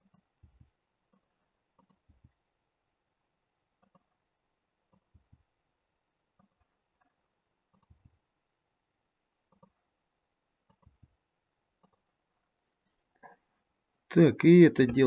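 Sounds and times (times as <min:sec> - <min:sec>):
computer mouse clicks: 0:00.0 - 0:00.3, 0:01.1 - 0:02.2, 0:03.8 - 0:04.2, 0:04.9 - 0:05.3, 0:06.4 - 0:07.1, 0:07.7 - 0:08.2, 0:09.5 - 0:09.8, 0:10.6 - 0:11.1, 0:11.8 - 0:12.1.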